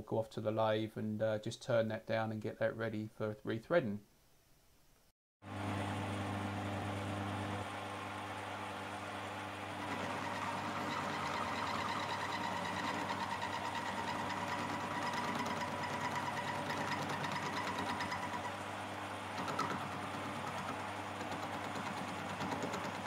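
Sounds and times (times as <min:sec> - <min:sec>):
lathe motor hum: 0:05.5 - 0:23.0
metal cutting whine: 0:09.8 - 0:18.7.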